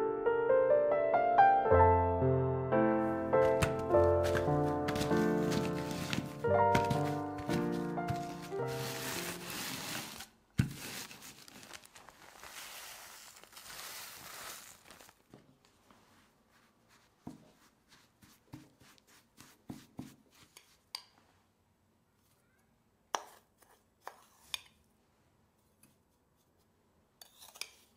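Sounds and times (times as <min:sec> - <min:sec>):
plastic bag crinkling: 0:03.4 - 0:15.4.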